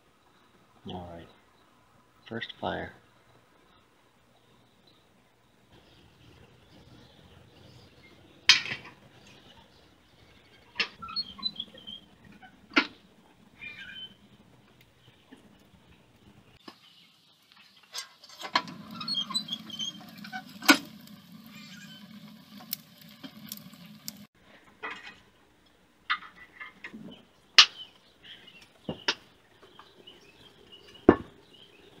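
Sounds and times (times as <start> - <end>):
wood fire crackling in a stove: 5.8 - 27.0.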